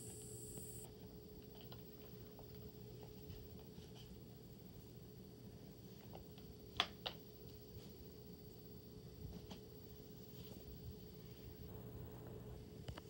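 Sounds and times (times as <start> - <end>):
faint high whine: 0.0 - 3.6, 4.2 - 13.0
faint steady hum: 0.0 - 13.0.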